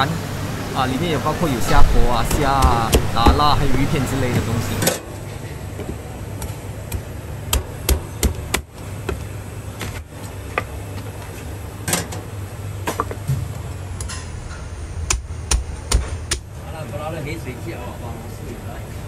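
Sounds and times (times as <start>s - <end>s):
low hum: 12.4s - 18.5s.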